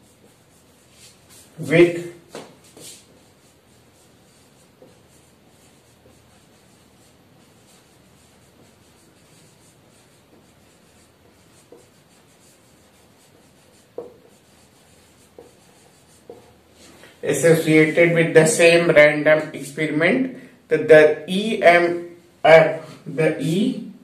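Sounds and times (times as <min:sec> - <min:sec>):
marker writing on whiteboard: 0:00.0 - 0:18.9.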